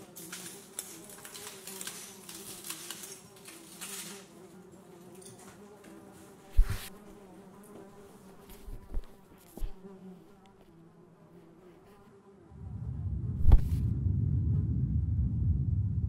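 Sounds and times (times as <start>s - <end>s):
papery rustle: 0.0s - 4.6s, 5.4s - 7.1s
insect buzzing: 0.0s - 12.6s.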